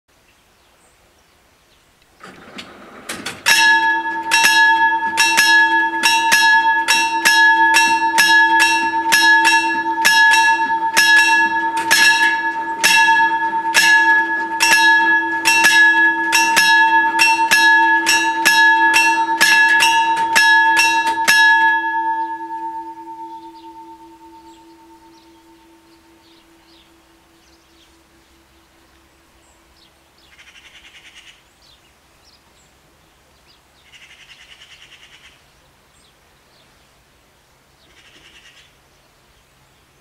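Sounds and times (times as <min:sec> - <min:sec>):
level crossing bells ringing: 0:02.3 - 0:29.4.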